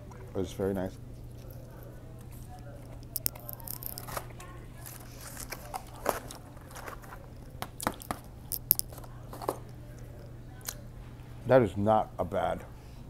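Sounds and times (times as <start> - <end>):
steady low hum: 0.0 - 13.0
mouth-close chewing: 1.2 - 4.4
paper wrapper crinkling: 1.2 - 9.2.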